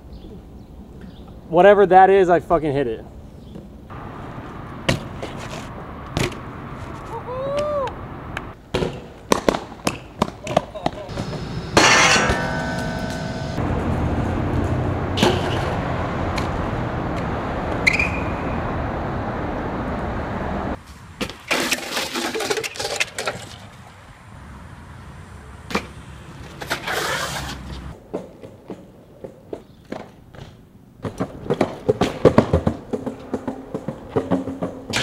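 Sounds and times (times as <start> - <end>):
bike tyres rolling on concrete: 3.6 - 12.3, 13.6 - 24.2, 25.6 - 35.0
bike landing with clatters: 8.8 - 13.6.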